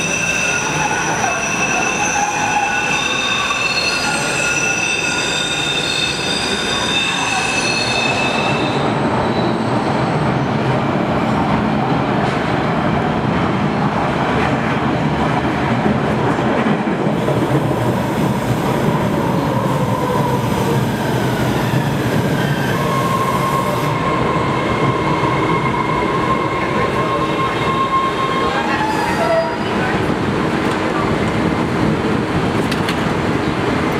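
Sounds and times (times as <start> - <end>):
train braking whine: 0.0 - 9.9, 20.6 - 29.7
train wheels squealing: 0.0 - 10.5, 19.3 - 29.9
subway train rumbling: 0.0 - 33.9.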